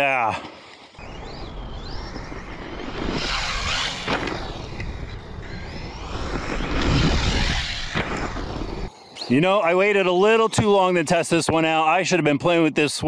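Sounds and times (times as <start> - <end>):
electric motor whining: 1.0 - 9.2.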